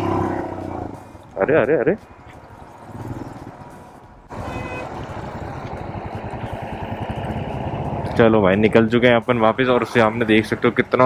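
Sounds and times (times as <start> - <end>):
motorcycle engine running: 2.2 - 11.0.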